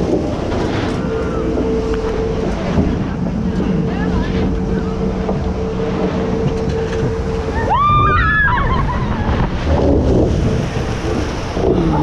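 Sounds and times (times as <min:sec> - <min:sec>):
water rushing beneath boat: 0:00.0 - 0:12.0
wind rushing over microphone: 0:00.0 - 0:12.0
heavy water splash: 0:07.2 - 0:12.0.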